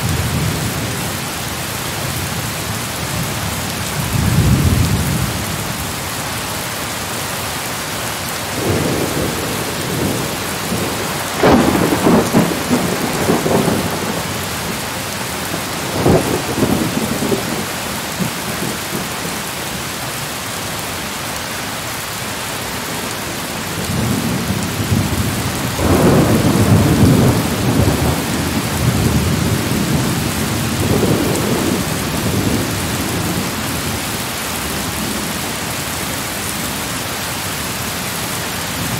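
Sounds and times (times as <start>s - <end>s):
heavy rain: 0.0s - 38.9s
thunder rumbling: 8.6s - 19.4s, 23.7s - 35.3s.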